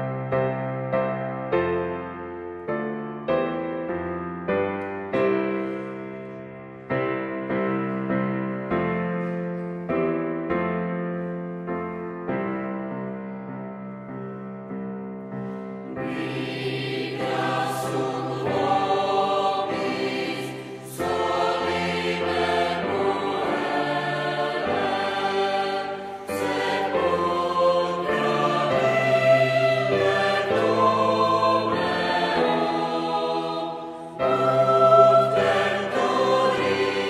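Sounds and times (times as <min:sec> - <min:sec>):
choir singing sustained chords: 0:15.4 - 0:37.0.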